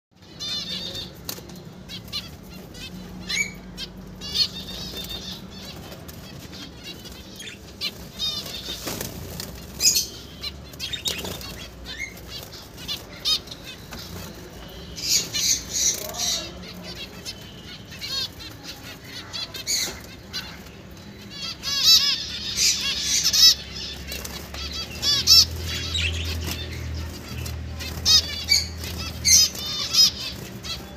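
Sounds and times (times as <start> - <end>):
finches honking beeps: 9.8 - 24.0.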